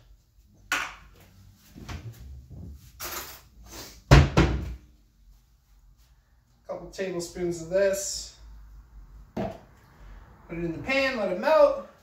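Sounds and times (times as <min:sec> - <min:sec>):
door closing thump: 0:04.1 - 0:04.8.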